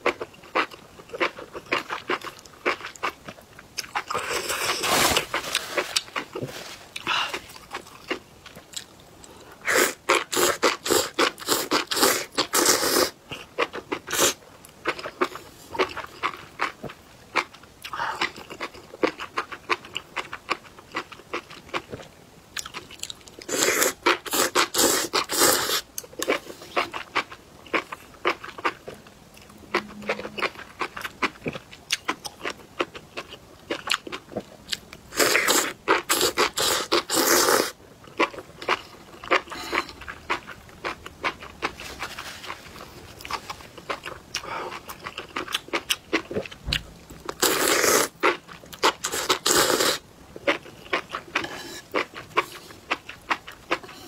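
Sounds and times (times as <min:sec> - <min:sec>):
slurping noodle-like strands: 0:04.2 - 0:07.1, 0:47.4 - 0:48.1.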